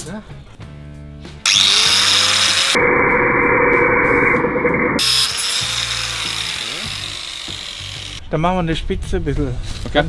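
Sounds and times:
angle grinder cutting metal: 1.5 - 8.2
background music: 5.0 - 9.8.

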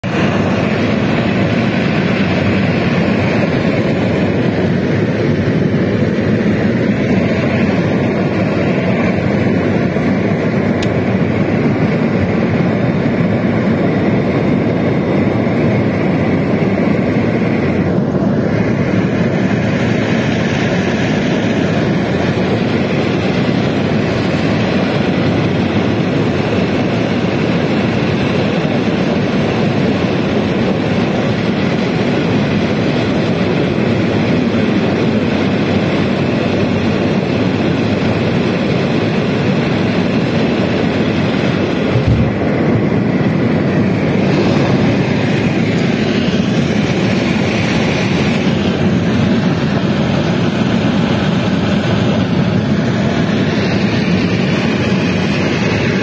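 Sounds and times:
jet engines in aircraft cabin: 0.0 - 56.0.

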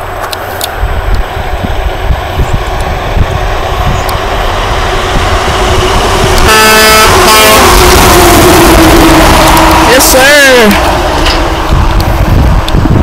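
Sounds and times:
truck engine and tyre noise: 0.0 - 13.0
truck horn blasts: 5.0 - 11.7.

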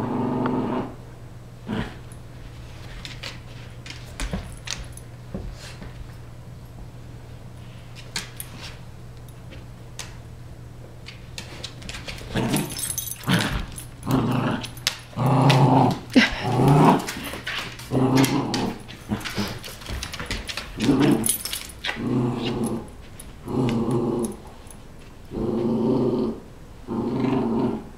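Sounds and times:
dogs growling in play: 0.0 - 1.0, 1.6 - 2.2, 12.0 - 27.9.

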